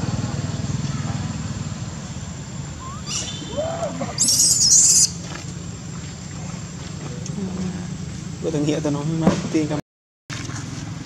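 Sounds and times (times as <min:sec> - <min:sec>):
baby monkey high-pitched squealing cry: 0:02.8 - 0:05.2
baby monkey squeaks: 0:02.8 - 0:05.2.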